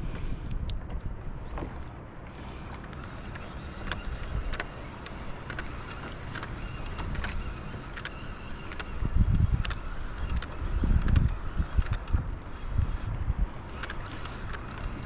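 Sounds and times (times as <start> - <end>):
wind rumble on microphone: 0.0 - 15.0
sharp short ticks: 2.7 - 12.2, 13.7 - 15.0.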